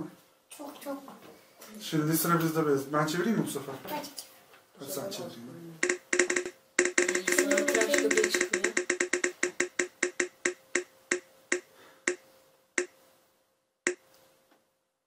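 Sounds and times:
prize wheel ticking: 0:05.8 - 0:12.2.

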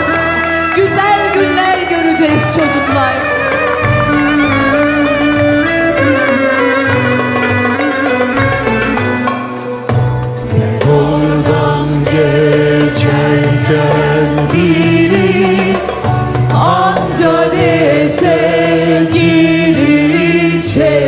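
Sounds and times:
lead singers into microphones: 0:10.4 - 0:21.0
mixed choir singing: 0:10.4 - 0:21.0.

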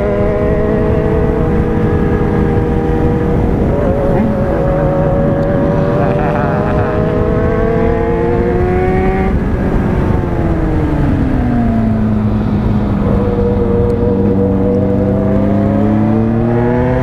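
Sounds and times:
motorcycle engine accelerating: 0:00.0 - 0:17.0
wind noise on microphone: 0:00.0 - 0:17.0.

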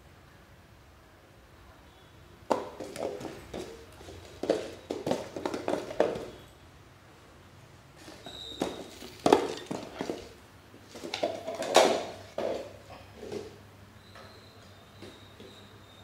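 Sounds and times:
plastic bowl scraping on tiles: 0:08.0 - 0:13.6.

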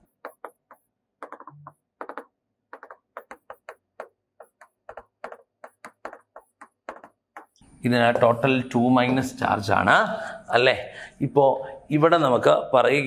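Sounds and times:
pen tapping and clicking: 0:00.0 - 0:07.6.

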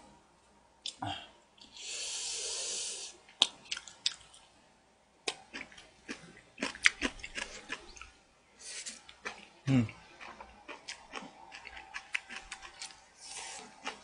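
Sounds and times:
hiss: 0:01.8 - 0:03.2
person chewing and eating: 0:03.3 - 0:04.6, 0:05.2 - 0:14.0.

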